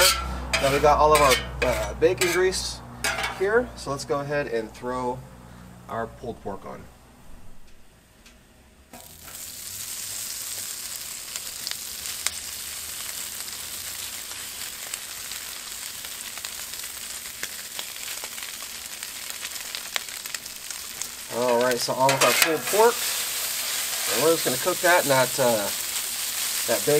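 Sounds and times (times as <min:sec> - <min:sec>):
meat sizzling on griddle: 0:00.0 - 0:02.3, 0:09.0 - 0:26.9
grease crackling and popping: 0:08.9 - 0:26.9.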